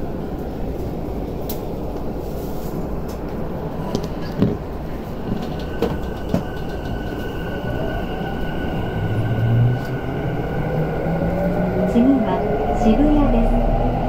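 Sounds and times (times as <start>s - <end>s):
train running noise: 0.0s - 14.0s.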